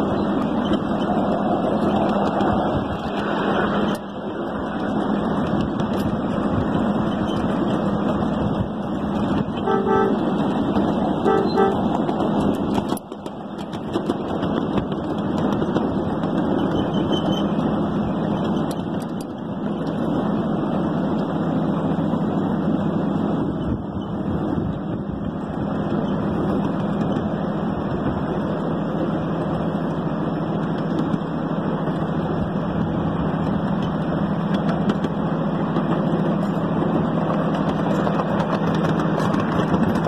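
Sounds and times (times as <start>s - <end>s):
steady rushing noise: 0.0s - 40.0s
miniature train horn toots: 9.5s - 10.5s, 11.2s - 12.0s.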